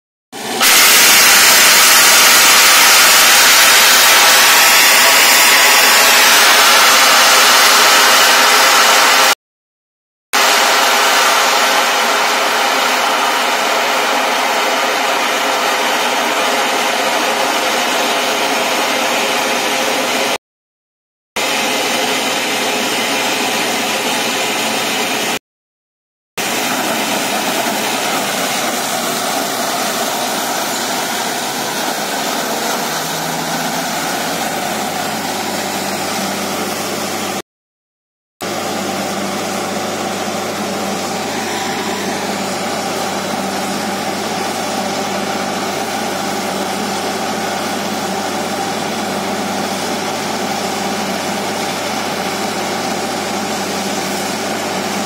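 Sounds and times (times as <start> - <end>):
drilling rig engine: 0.4 - 9.4, 10.4 - 20.4, 26.4 - 37.4, 38.4 - 55.0
water and mud slurry rushing: 26.4 - 37.4.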